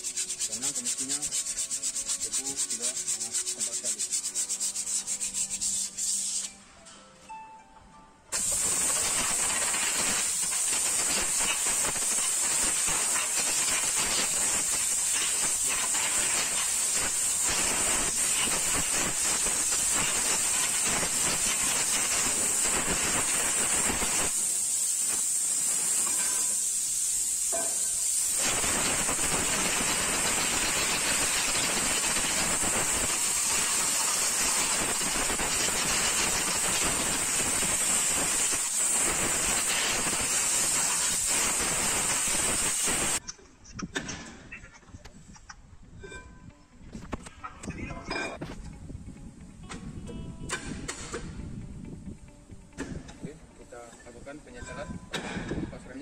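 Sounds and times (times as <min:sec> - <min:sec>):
air blow gun hissing: 0:00.0 - 0:06.6, 0:08.3 - 0:43.2.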